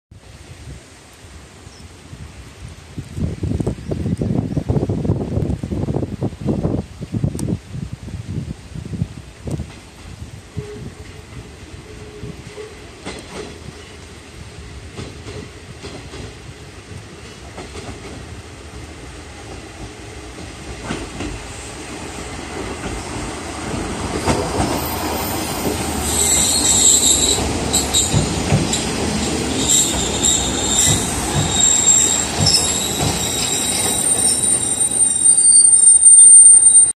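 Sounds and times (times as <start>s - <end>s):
train wheels on rails: 9.0s - 36.9s
diesel railcar running: 9.8s - 36.9s
wheel and brake squealing: 24.8s - 36.9s.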